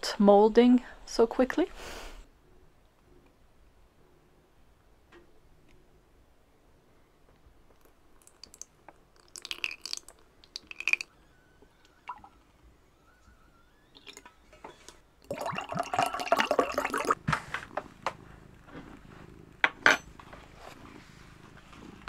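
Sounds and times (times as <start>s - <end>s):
water pouring into glass: 9.2s - 11.1s, 11.8s - 12.4s, 14.0s - 14.3s, 15.2s - 17.2s.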